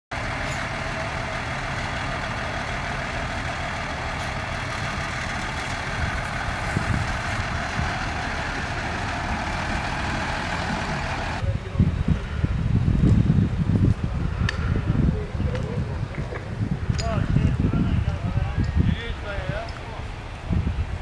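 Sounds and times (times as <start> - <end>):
fire truck diesel engine idling: 0.1 - 11.4.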